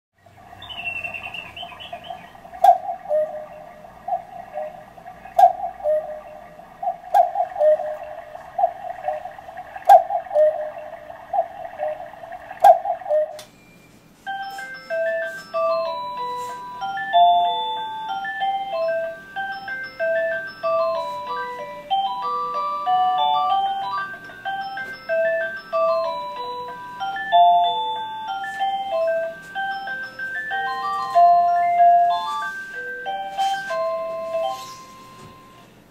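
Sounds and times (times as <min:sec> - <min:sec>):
cuckoo clock calling: 0:00.2 - 0:35.8
cuckoo clock click: 0:01.3 - 0:04.7, 0:05.3 - 0:11.9, 0:12.6 - 0:13.6
music box tinkling melody: 0:14.2 - 0:35.8.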